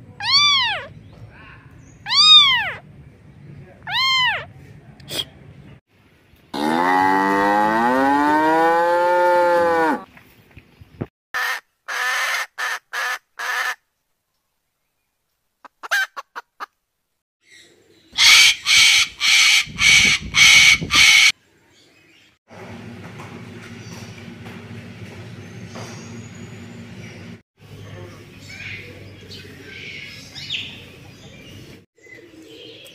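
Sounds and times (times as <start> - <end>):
cow mooing: 6.6 - 10.0
harsh bird calls: 17.4 - 21.4.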